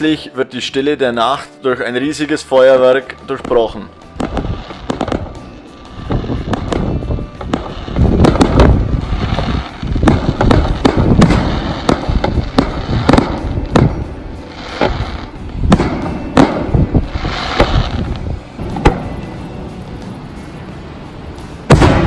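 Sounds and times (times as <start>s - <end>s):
fireworks crackling: 2.0s - 22.0s
fireworks bangs and pops: 3.4s - 19.3s, 21.7s - 22.0s.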